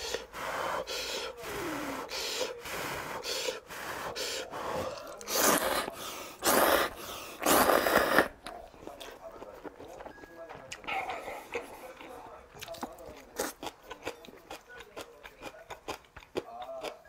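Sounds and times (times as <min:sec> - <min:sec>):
noodle slurping: 0:00.0 - 0:08.6
man blowing on noodles: 0:05.3 - 0:08.3.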